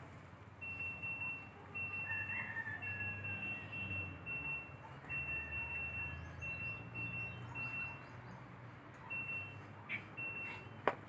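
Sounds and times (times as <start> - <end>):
high-pitched electronic beeping: 0.6 - 8.2.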